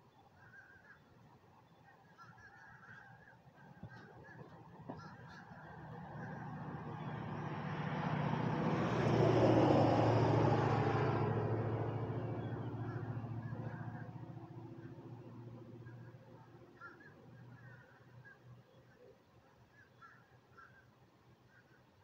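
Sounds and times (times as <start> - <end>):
crows cawing: 0.4 - 1.1, 2.1 - 7.2, 12.1 - 18.5, 19.8 - 20.9
vehicle passing by: 5.3 - 16.5.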